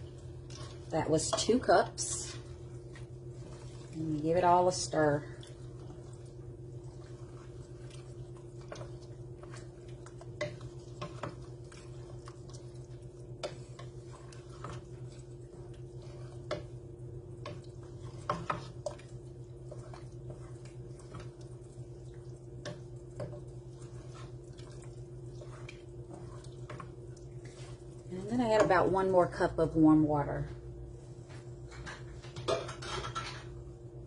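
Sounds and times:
spoon stirring thick chilli: 0.0 - 29.4
spoon tapping and scraping pot: 0.5 - 2.4, 7.0 - 27.8.

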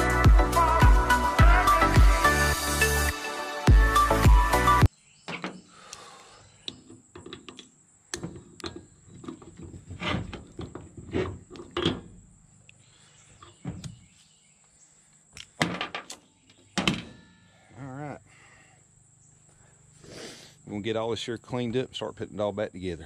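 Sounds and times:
metal clinks and knocks: 15.4 - 17.6.

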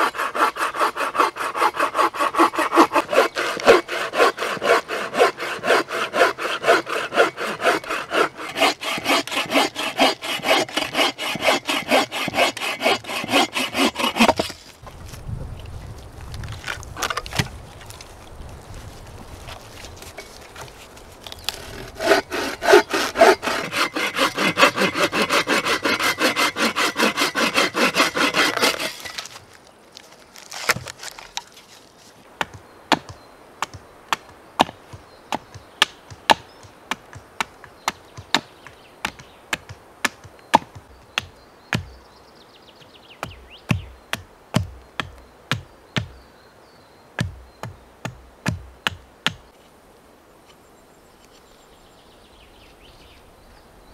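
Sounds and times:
hand saw cutting wood: 0.0 - 14.7, 21.4 - 29.4
hatchet knocking wooden stake: 32.4 - 42.0, 47.2 - 49.5.

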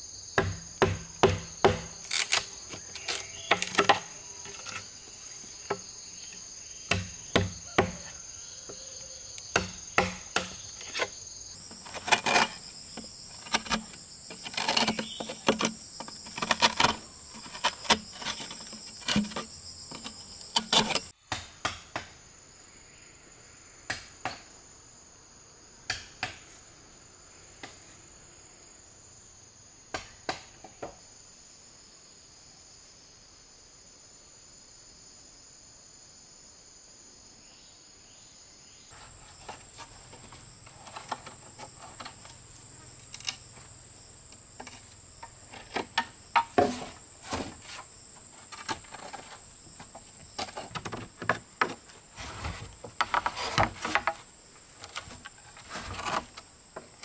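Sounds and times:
high insect chorus: 0.0 - 57.0
wooden club striking a chisel: 0.4 - 2.0, 6.9 - 8.1, 9.5 - 11.1.

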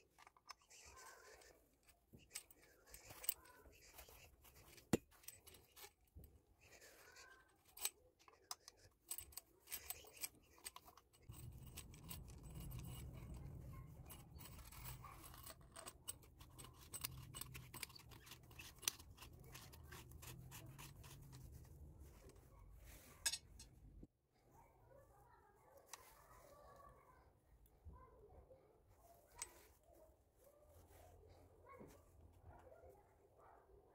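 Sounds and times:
small metallic clicks and scrapes: 0.0 - 24.1, 25.8 - 27.2, 29.2 - 30.0.

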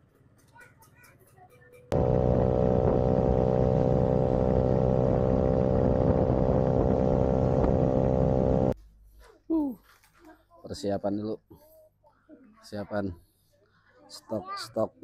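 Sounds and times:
scooter engine droning: 1.9 - 8.8.

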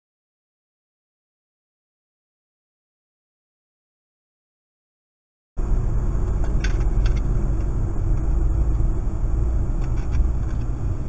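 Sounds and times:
car engine and tyres rumbling: 5.6 - 11.0.

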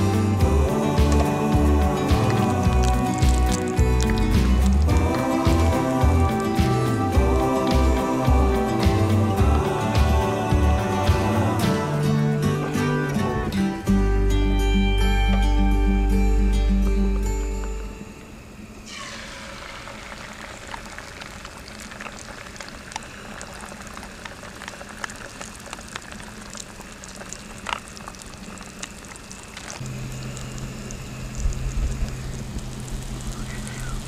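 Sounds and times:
eggs sizzling in a frying pan: 0.0 - 12.1, 18.9 - 34.0.

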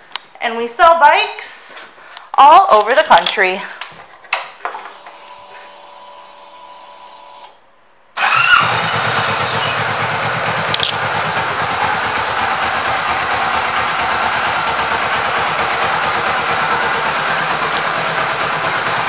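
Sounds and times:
motorcycle engine idling: 8.2 - 19.0.

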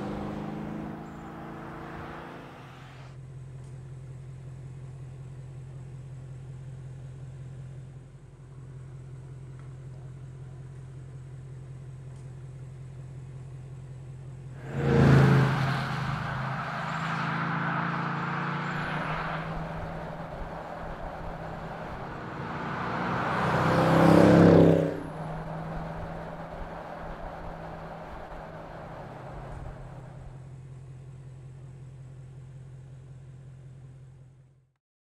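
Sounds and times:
car engine accelerating: 0.0 - 3.2, 14.6 - 30.5.

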